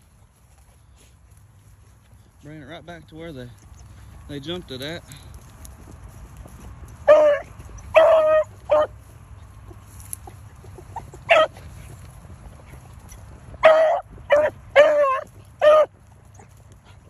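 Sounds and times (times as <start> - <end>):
hound barking: 7.0 - 9.0, 10.7 - 12.0, 13.6 - 17.0.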